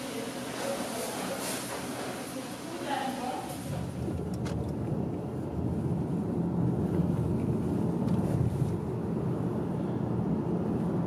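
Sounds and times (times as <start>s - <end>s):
car driving interior rumble: 3.6s - 11.0s.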